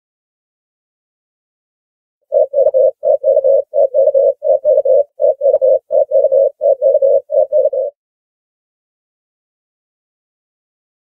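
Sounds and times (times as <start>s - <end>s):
dove cooing: 2.3s - 8.0s.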